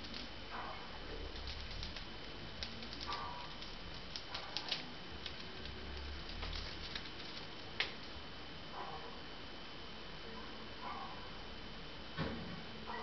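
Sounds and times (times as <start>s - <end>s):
chipmunk gnawing and chewing: 0.0s - 8.2s.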